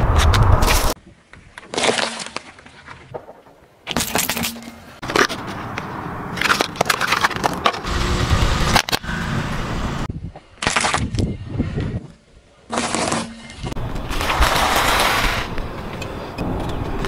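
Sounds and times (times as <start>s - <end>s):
rolling tyre rumble: 4.6s - 10.1s, 13.4s - 17.0s.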